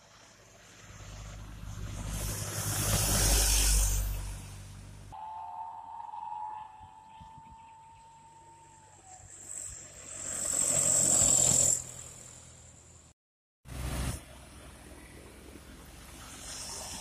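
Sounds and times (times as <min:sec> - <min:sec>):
truck driving past: 0:00.1 - 0:05.1
faint high whine: 0:00.2 - 0:13.1.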